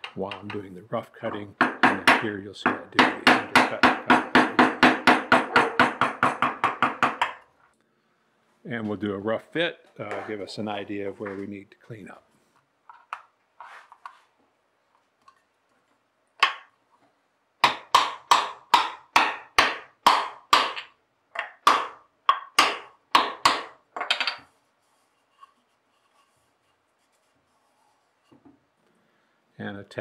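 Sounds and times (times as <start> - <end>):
mallet knocking wood: 1.6 - 7.4, 17.6 - 24.2.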